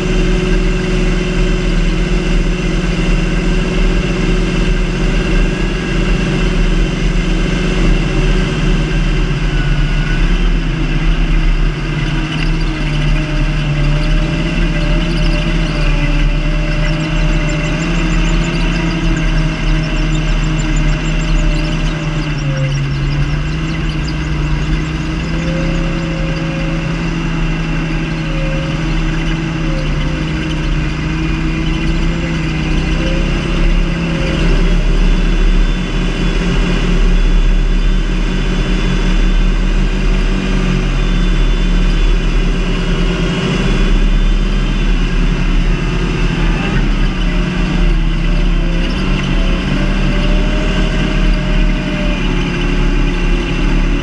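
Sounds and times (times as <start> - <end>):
tractor diesel engine rumbling: 0.0 - 54.0.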